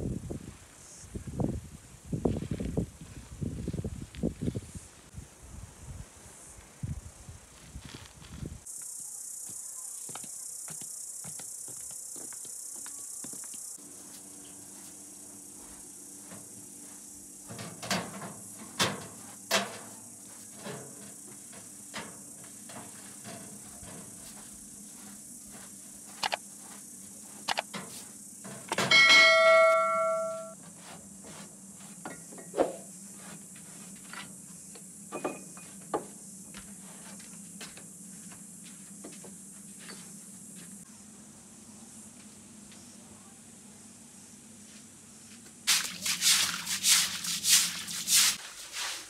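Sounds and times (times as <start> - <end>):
metal vessel ringing: 28.8 - 30.6.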